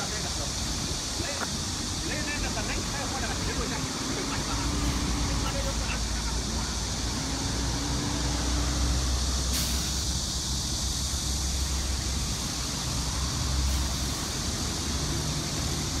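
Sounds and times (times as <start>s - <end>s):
even hiss: 0.0s - 16.0s
low rumble of vehicle noise: 0.0s - 16.0s
brief sharp hiss: 9.3s - 11.2s.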